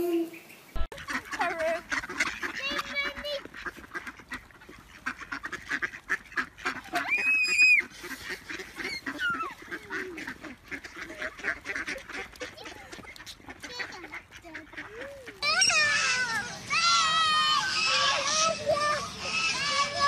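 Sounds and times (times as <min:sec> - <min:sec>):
ducks quacking: 0:00.3 - 0:20.0.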